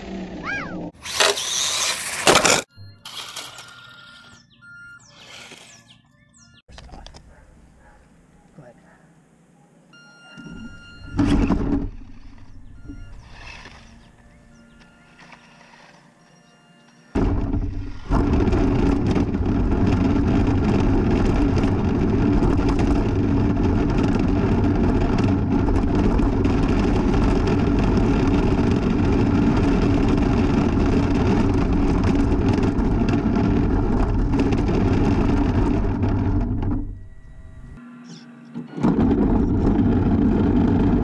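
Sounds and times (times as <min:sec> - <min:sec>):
toy truck rumbling over pavement: 0:00.0 - 0:04.4, 0:10.6 - 0:16.2, 0:17.2 - 0:37.4, 0:38.6 - 0:41.0
constant low hum: 0:06.7 - 0:41.0.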